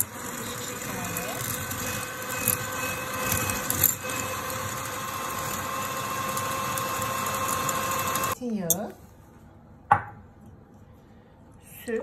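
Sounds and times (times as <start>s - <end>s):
electric hand mixer whining: 0.0s - 8.4s.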